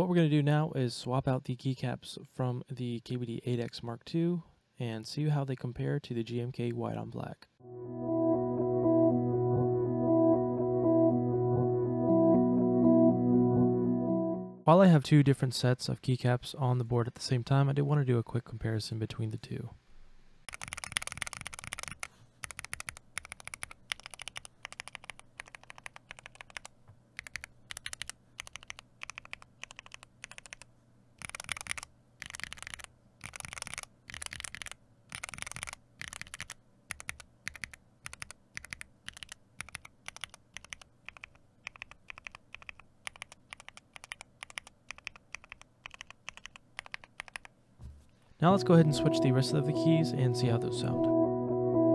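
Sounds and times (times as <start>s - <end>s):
mechanical keyboard typing: 20.5s - 47.5s.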